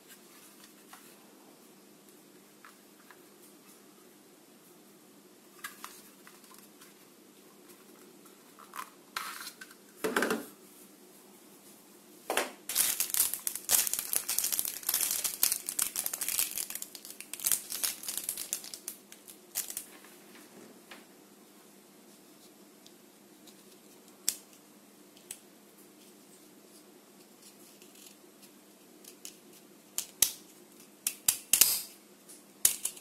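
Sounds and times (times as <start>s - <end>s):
plastic bag crinkling: 12.7s - 20.0s.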